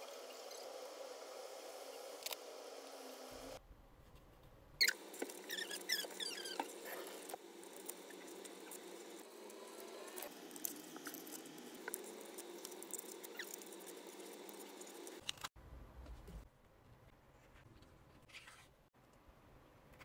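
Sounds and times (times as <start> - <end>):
short squeaks: 4.8 - 6.8.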